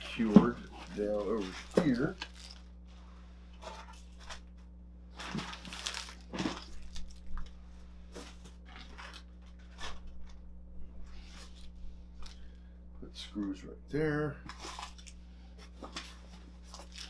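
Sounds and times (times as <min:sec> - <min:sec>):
plastic bags crinkling: 0:00.0 - 0:02.9, 0:03.6 - 0:10.4, 0:14.5 - 0:17.0.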